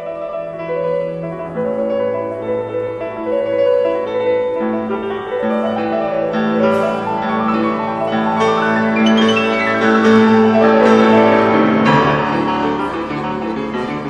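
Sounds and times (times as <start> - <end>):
piano playing classical music: 0.0 - 14.0.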